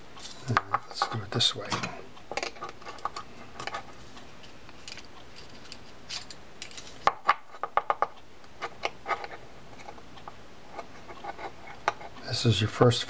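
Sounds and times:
metal clicks and scraping: 0.2 - 7.6.

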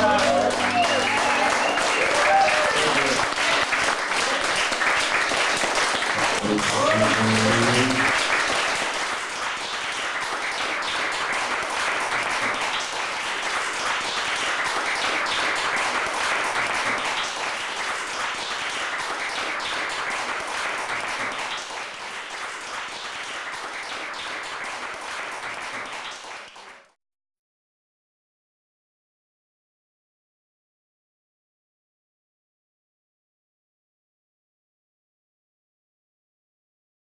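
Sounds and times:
audience applause: 0.0 - 27.0.

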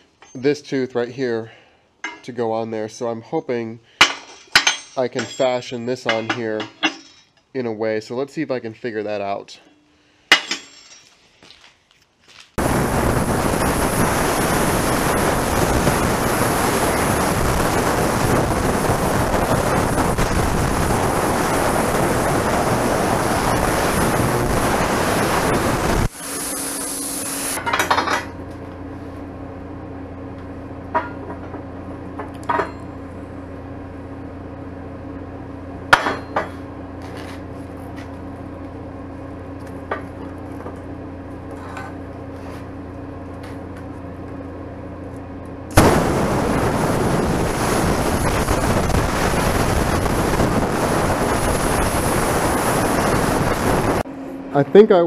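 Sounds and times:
low steady hum: 0.0 - 11.6
welding arc crackling and hissing: 12.6 - 27.6, 45.7 - 54.1.

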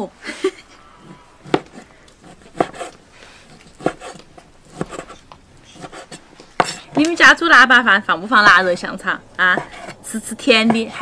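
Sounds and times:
cleaver chopping on wooden board: 1.4 - 3.0, 3.7 - 5.2, 5.8 - 7.1, 9.5 - 11.0.

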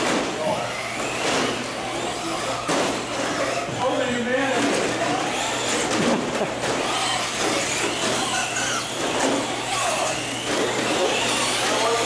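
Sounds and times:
electric motors whining: 0.0 - 12.0.

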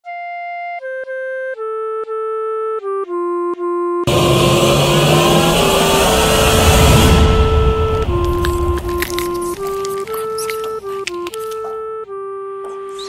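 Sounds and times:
loud noisy wash: 4.1 - 10.1.

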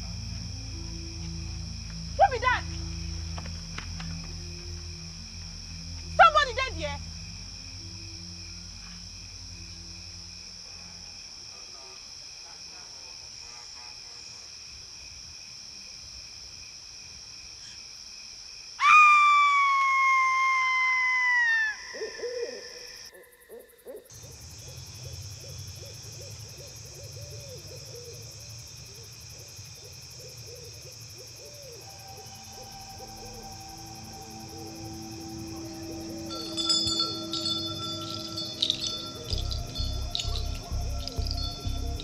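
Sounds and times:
low wavering drone: 0.0 - 6.2, 31.7 - 42.0
soft music tones: 0.0 - 11.2, 31.8 - 42.0
night insects chirring: 0.0 - 42.0
owl hooting: 18.8 - 24.2, 29.8 - 42.0.

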